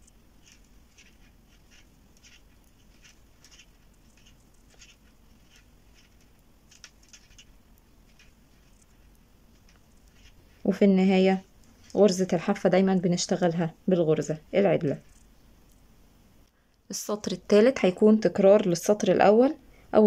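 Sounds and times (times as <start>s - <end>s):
knitting needles clicking: 0.0s - 10.3s.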